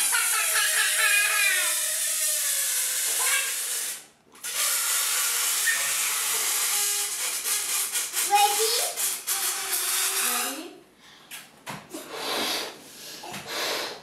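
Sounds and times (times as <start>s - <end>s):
air hissing out of balloon: 0.0s - 10.7s, 12.0s - 14.0s.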